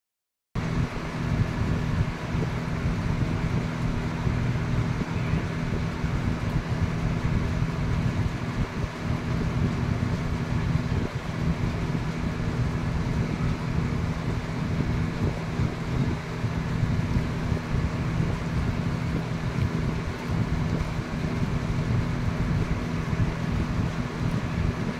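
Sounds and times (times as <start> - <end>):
low machine hum: 0.6 - 24.9.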